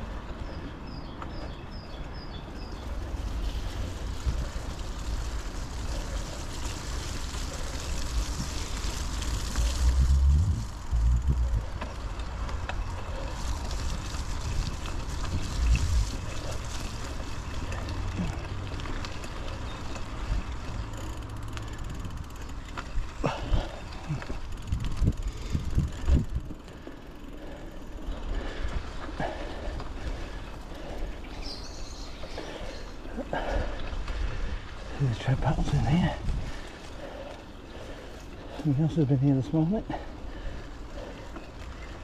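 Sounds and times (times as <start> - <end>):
tyre and wind noise: 0.0 - 39.2.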